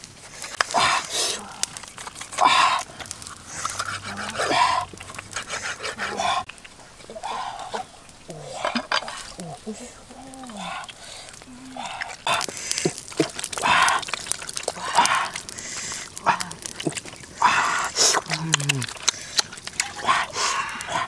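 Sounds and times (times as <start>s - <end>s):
water splashing: 0.0s - 21.0s
low grunts: 3.7s - 5.3s, 16.2s - 19.0s.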